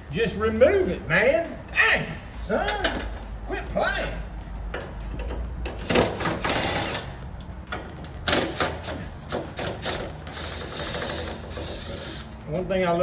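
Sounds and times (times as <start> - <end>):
impact driver hammering: 7.8 - 12.1.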